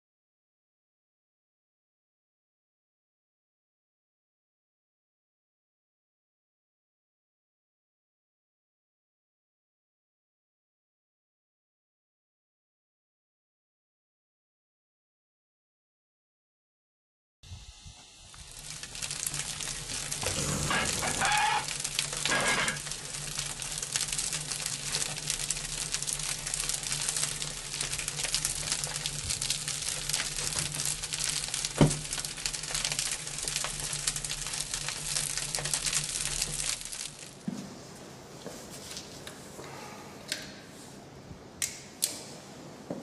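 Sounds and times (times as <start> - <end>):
crackling hiss: 17.5 - 37.4
short pitched calls: 20.2 - 22.8.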